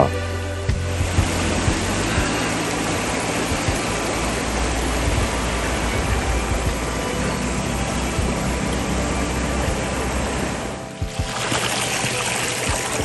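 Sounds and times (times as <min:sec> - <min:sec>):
stream rippling over rocks: 0:00.6 - 0:13.0.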